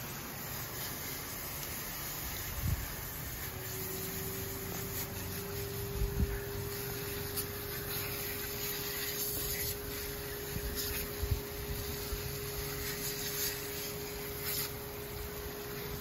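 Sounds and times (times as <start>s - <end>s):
hose spraying water: 0.0s - 16.0s
steady hum: 0.0s - 16.0s.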